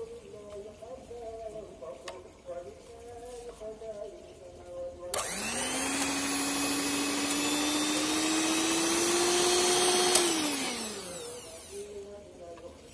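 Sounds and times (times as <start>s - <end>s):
hand mixer motor whine: 5.2s - 12.0s.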